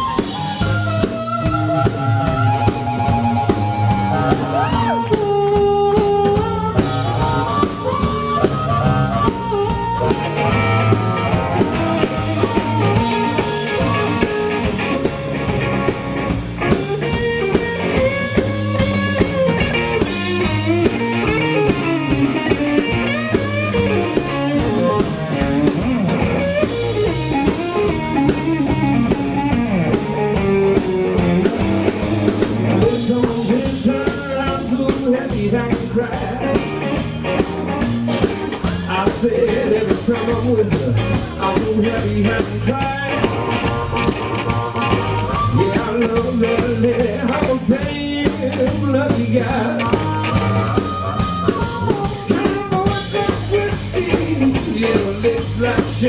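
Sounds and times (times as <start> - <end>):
harmonica: 0.0 - 15.4
electric blues band playing: 0.0 - 56.0.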